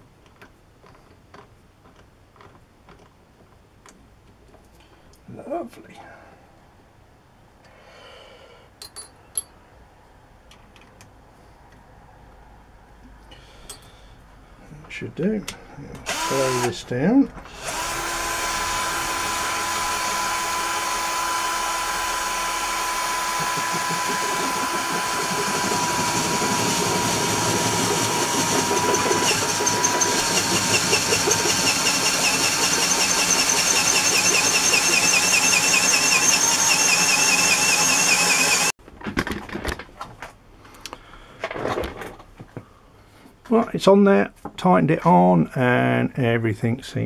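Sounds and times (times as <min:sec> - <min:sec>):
cordless drill running: 0:16.0 - 0:16.8, 0:17.5 - 0:38.8
disc sander motor running: 0:16.1 - 0:16.8, 0:17.5 - 0:38.7.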